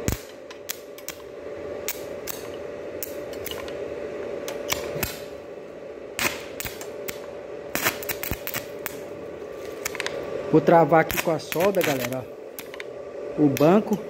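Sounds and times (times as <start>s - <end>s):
welding clicks and crackles: 0.0s - 3.8s, 4.4s - 5.3s, 6.2s - 9.0s, 9.6s - 10.2s, 10.9s - 12.9s, 13.5s - 14.0s
arc welding hum: 0.0s - 14.0s.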